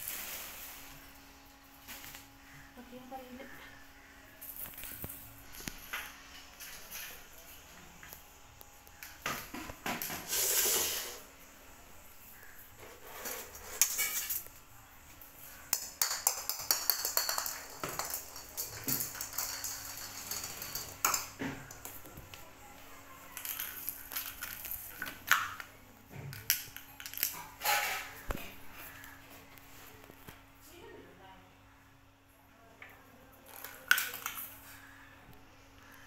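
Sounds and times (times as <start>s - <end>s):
fluttering hiss: 10.1s - 11.4s
light scrapes: 12.8s - 14.3s.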